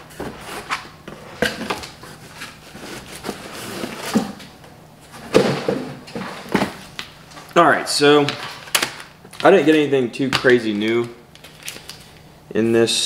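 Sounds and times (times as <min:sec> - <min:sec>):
items rustling in cardboard box: 0:00.0 - 0:04.5, 0:08.2 - 0:12.2
items knocking against cardboard: 0:05.2 - 0:06.8.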